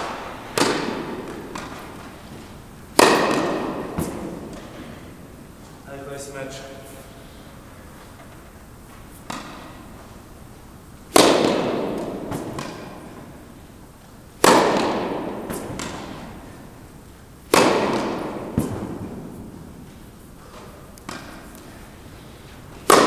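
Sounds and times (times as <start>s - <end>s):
tennis ball hits echoing: 0.0s - 5.6s, 9.2s - 10.0s, 11.1s - 13.7s, 14.4s - 21.8s, 22.8s - 23.0s.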